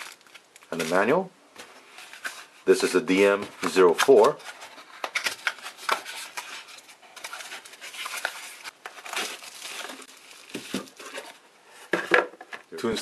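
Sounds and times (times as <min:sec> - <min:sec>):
plastic packaging crinkling: 0:00.0 - 0:01.2, 0:03.7 - 0:11.4.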